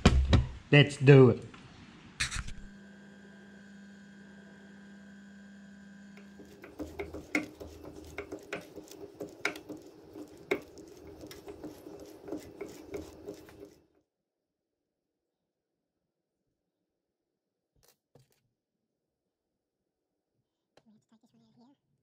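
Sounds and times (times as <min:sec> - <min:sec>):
drill press motor humming: 0:02.7 - 0:14.0
drill bit cutting metal: 0:06.1 - 0:13.8.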